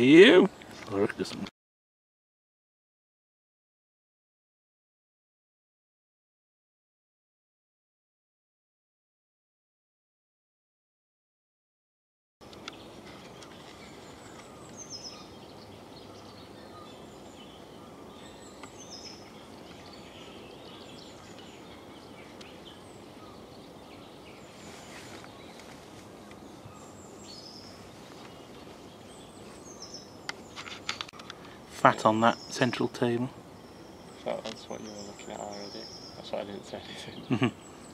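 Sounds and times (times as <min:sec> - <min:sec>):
songbirds chirping: 0:00.0 - 0:01.5, 0:12.4 - 0:37.9
steady background hiss: 0:00.0 - 0:01.5, 0:12.4 - 0:37.9.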